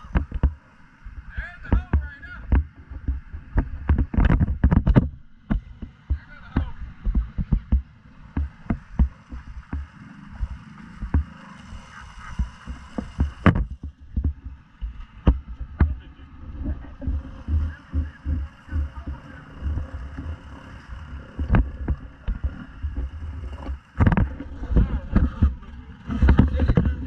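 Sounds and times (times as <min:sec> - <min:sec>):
atv engines rumbling: 0:00.0 - 0:27.0
water splashes: 0:00.0 - 0:27.0
sharp knocks: 0:01.6 - 0:11.3, 0:12.4 - 0:14.6, 0:21.4 - 0:27.0.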